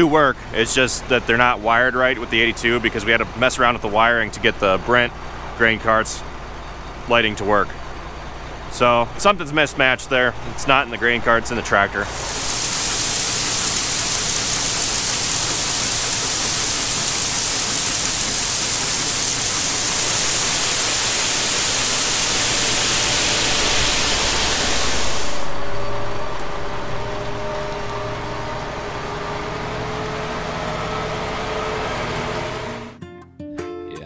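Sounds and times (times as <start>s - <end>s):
tractor engine running: 0.0s - 33.0s
grain pouring from auger: 12.0s - 29.0s.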